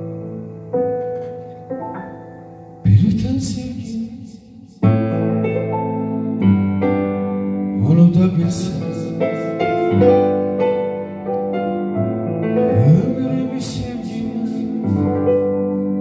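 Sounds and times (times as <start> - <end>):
electronic keyboard chords: 0.0 - 16.0
man singing into a microphone: 2.8 - 4.8, 7.7 - 10.2, 12.6 - 15.5.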